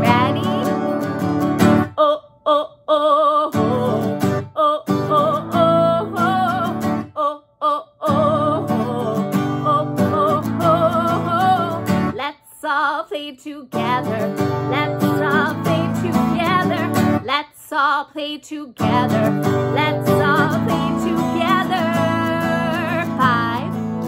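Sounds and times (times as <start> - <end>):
acoustic guitar strumming: 0.0 - 2.0, 8.1 - 12.2, 13.7 - 17.3, 18.8 - 24.0
woman singing with vibrato: 0.0 - 24.0.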